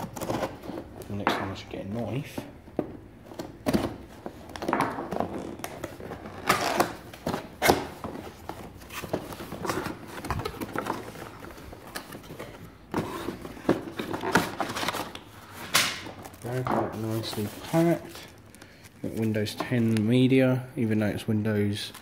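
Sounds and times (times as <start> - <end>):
pulp packing rustling: 3.2 - 20.2.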